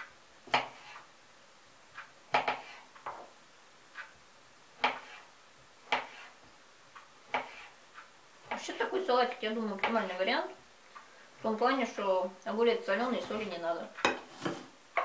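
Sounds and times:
knife chopping on wooden board: 0.5 - 1.0, 2.3 - 3.2, 4.8 - 6.3, 7.3 - 7.7.

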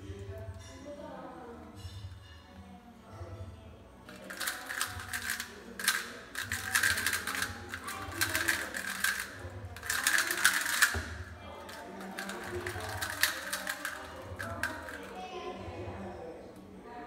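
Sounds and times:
puzzle cube plastic clicking: 4.2 - 15.1.

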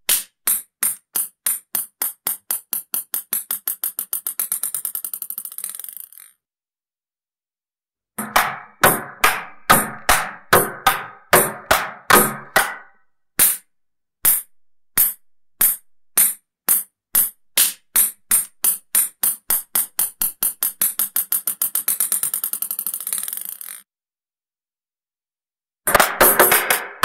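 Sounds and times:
table tennis ball bouncing: 0.0 - 6.3, 8.2 - 13.6, 14.3 - 23.8, 25.9 - 27.0
table tennis ball knocked back and forth: 0.0 - 6.3, 8.2 - 13.6, 14.3 - 23.8.

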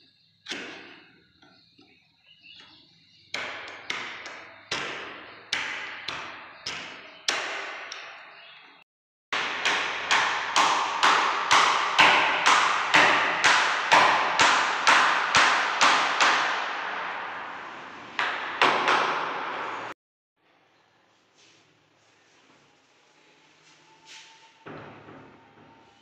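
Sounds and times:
hammer striking steel hinge: 9.4 - 17.5.

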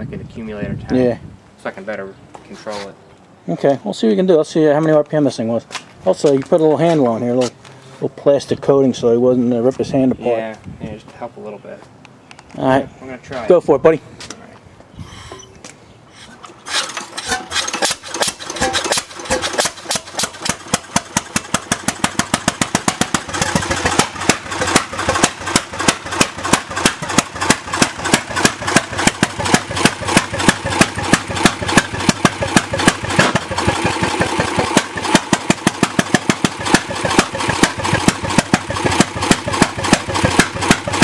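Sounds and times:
single-cylinder engine firing pops: 17.2 - 33.7.

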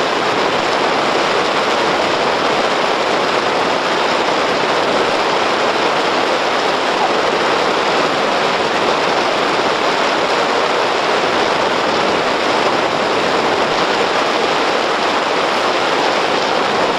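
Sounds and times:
tyres rolling on slushy road: 0.0 - 16.9.

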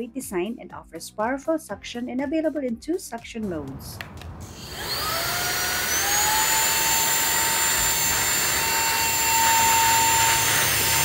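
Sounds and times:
handheld vacuum cleaner whining: 4.5 - 11.0.

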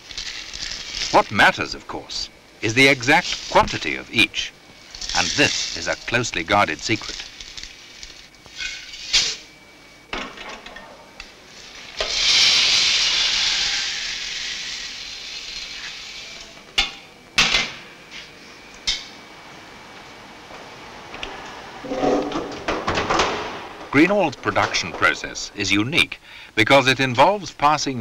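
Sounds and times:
dried seeds rattling into metal tray: 4.9 - 7.6.

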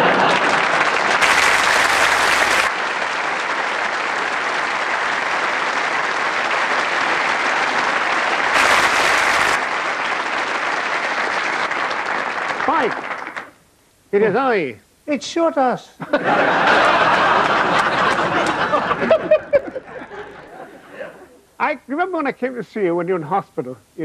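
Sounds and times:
large audience applauding: 0.0 - 13.6, 16.4 - 20.5.

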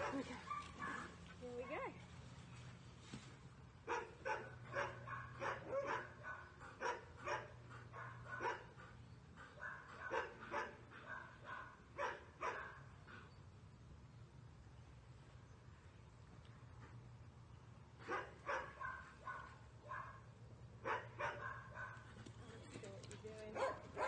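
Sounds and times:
puppy barking: 3.9 - 8.6, 9.6 - 12.8, 18.1 - 20.2, 20.8 - 22.0, 23.6 - 24.0.

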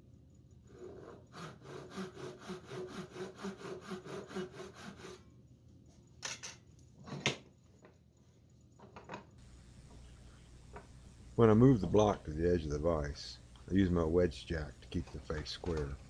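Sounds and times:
saw cutting wood: 0.7 - 5.2.

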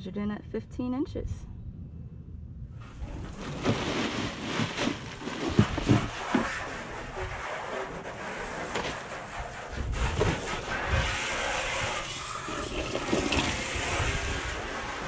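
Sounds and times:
wind on microphone: 1.1 - 7.4, 9.3 - 15.0
low thumps and knocks: 2.9 - 6.6.

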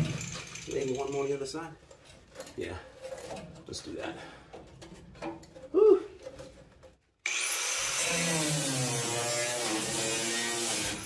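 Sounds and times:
angle grinder cutting steel: 7.3 - 11.0.

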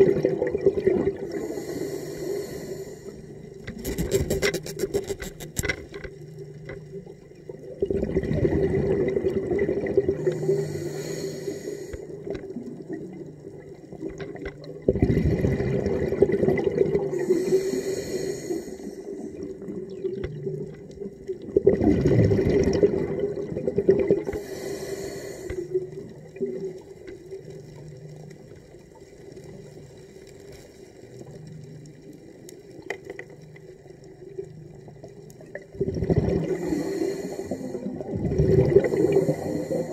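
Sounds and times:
exhaled bubbles rushing: 0.0 - 1.4, 7.5 - 10.6, 12.5 - 17.3, 19.2 - 24.4, 34.5 - 39.9
diver breathing through regulator: 1.2 - 5.7, 10.1 - 12.4, 17.0 - 19.4, 24.2 - 26.0, 36.4 - 39.9.

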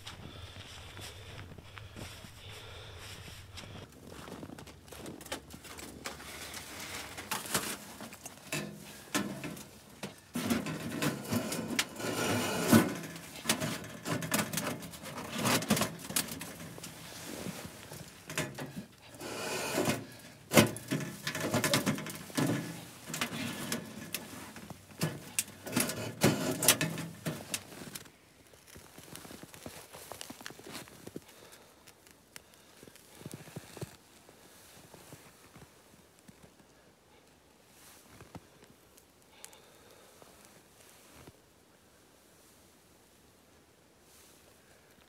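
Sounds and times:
knocks and clatters: 5.1 - 17.0, 19.8 - 28.0.

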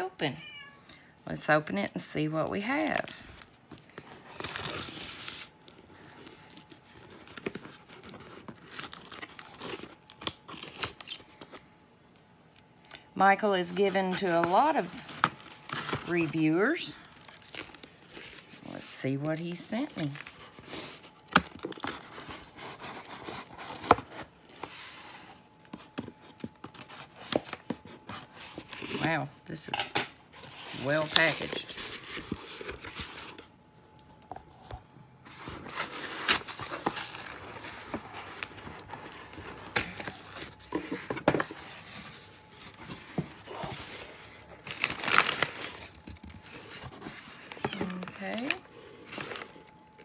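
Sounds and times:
packing tape tearing off cardboard: 2.7 - 11.4, 17.0 - 18.6, 19.9 - 25.2, 30.4 - 33.5, 35.3 - 50.0
scratching and crinkling: 30.3 - 50.0.

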